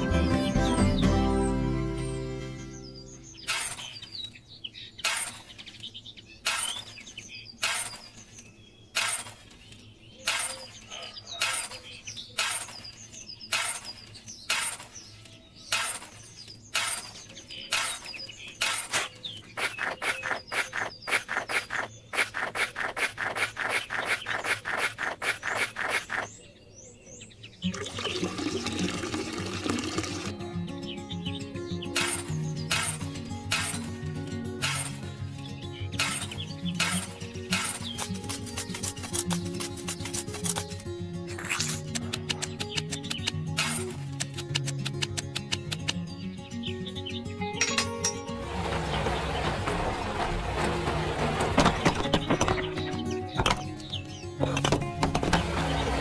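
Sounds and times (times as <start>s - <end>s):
toy shovel scraping cement powder: 13.5s - 15.0s, 16.8s - 26.3s, 34.6s - 35.0s, 36.0s - 40.7s
water pouring into powder: 27.7s - 30.3s.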